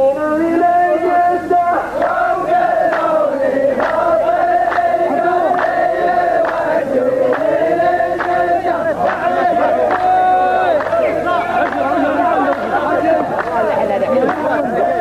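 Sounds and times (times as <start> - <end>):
men chanting in unison: 0.0 - 15.0
sharp clap: 2.8 - 6.7, 7.3 - 7.6, 8.2 - 8.4, 9.0 - 13.6.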